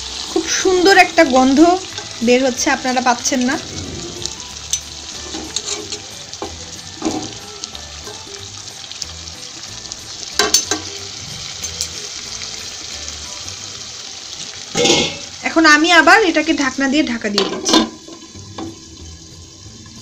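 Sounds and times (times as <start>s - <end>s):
food sizzling in hot oil: 0.0s - 20.0s
spatula scraping and knocking pan: 4.2s - 7.4s.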